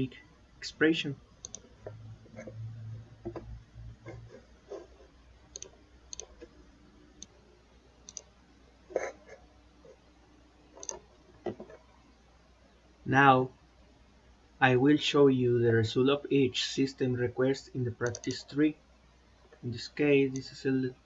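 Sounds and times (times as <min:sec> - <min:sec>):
low hum: 0:00.0 - 0:09.1
mouse and keyboard clicks: 0:10.8 - 0:11.8, 0:18.0 - 0:18.4.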